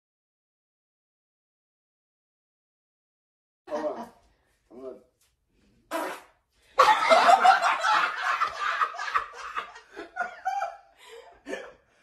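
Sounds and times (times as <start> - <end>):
people laughing loudly: 6.8 - 11.7.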